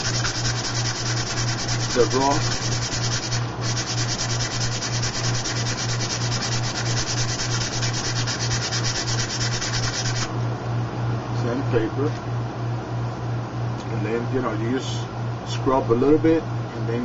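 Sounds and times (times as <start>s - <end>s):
sandpaper scrubbing on metal: 0.0s - 10.3s
steady low hum: 0.0s - 17.0s.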